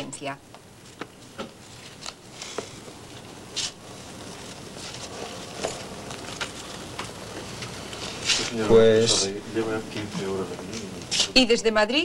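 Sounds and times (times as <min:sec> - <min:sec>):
steady background hiss: 0:00.0 - 0:12.0
paper pages rustling: 0:03.6 - 0:08.6.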